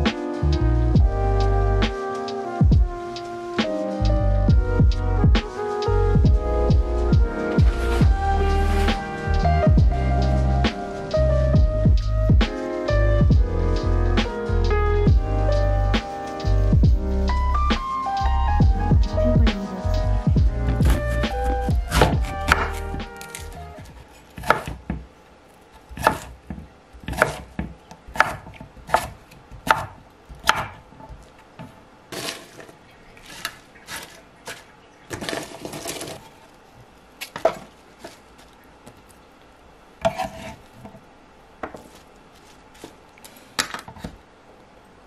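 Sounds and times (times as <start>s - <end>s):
salad leaves rustling: 20.8s - 24.6s, 32.1s - 39.3s, 41.8s - 43.6s.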